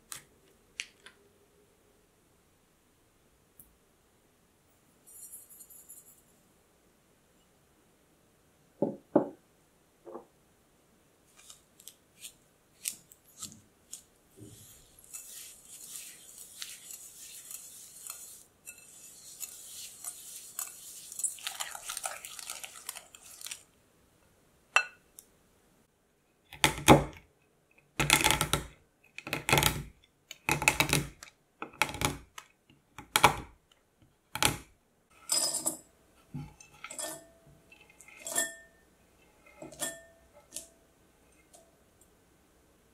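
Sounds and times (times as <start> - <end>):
whisk scratching in glass bowl: 14.4 - 23.6, 36.6 - 40.0.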